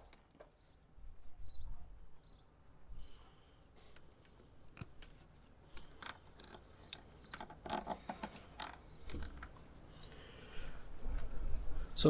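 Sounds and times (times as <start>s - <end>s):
plastic connectors clicking and rustling: 3.9s - 9.6s.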